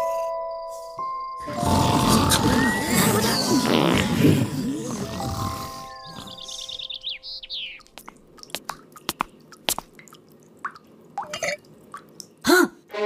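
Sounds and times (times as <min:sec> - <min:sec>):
sharp clicks and pops: 0:07.8 - 0:11.4.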